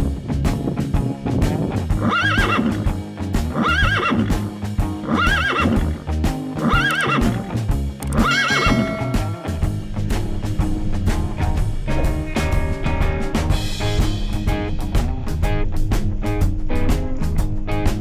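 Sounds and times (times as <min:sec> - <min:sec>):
background music with steady beat: 0:00.0 - 0:18.0
wavering high musical figure: 0:08.0 - 0:10.1.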